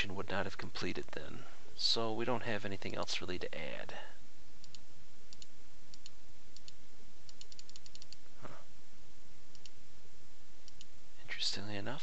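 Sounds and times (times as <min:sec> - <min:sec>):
steady background hiss: 0:00.0 - 0:12.0
computer mouse clicking: 0:04.6 - 0:08.2, 0:09.5 - 0:09.8, 0:10.6 - 0:10.9.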